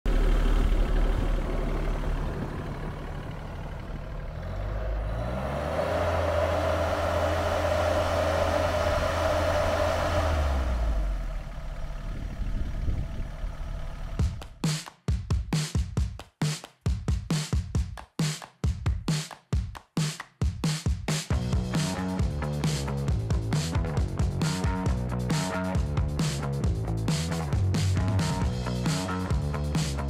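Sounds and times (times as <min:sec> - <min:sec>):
tractor diesel engine running: 0:00.1 - 0:14.5
music with drum beat: 0:14.2 - 0:30.0.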